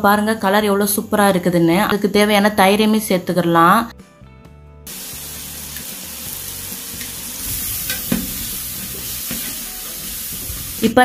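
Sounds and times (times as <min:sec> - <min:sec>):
sauce sizzling in metal pot: 0:04.9 - 0:11.0.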